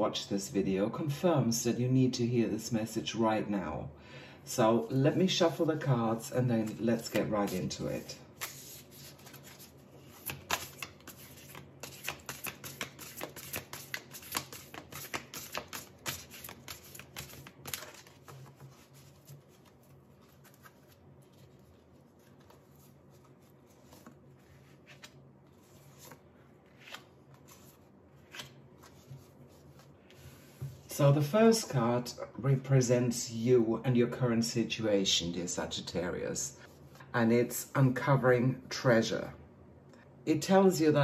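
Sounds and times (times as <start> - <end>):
cards being shuffled: 6.6 - 30.9.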